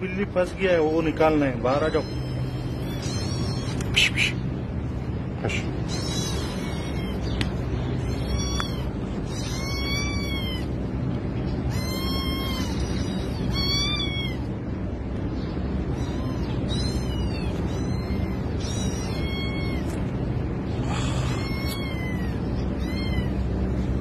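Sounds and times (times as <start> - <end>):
kitten meowing: 1.6 - 4.2, 5.8 - 10.8, 11.6 - 14.6, 15.8 - 23.6.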